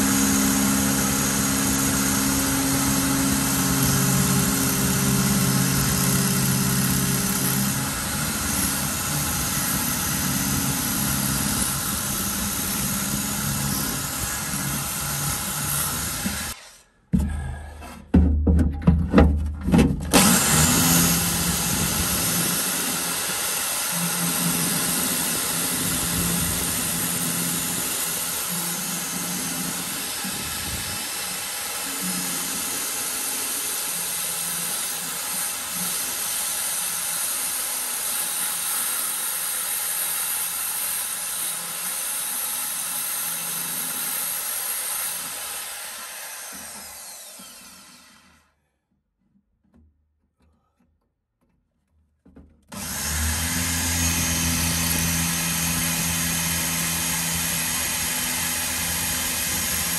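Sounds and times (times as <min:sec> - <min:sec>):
electric drill boring into steel: 0:00.0 - 0:16.8, 0:20.1 - 0:48.6, 0:52.7 - 0:59.9.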